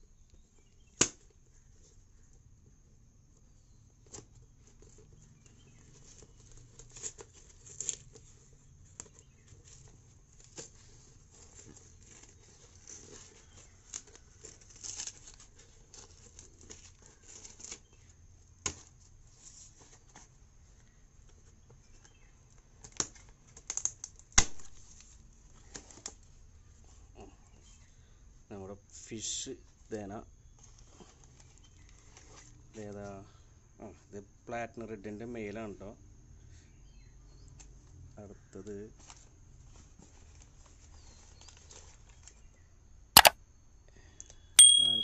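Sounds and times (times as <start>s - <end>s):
packing tape peeling and tearing: 13.9s - 15.5s.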